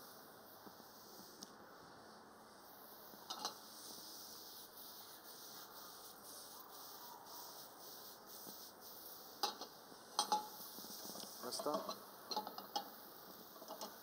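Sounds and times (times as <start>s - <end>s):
faint steady hiss: 0.0s - 14.0s
cookware clattering: 9.4s - 10.5s.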